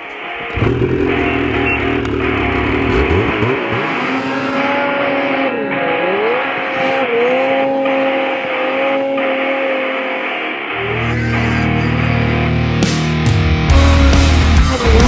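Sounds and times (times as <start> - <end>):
snowmobile engine revving: 0.5 - 12.5.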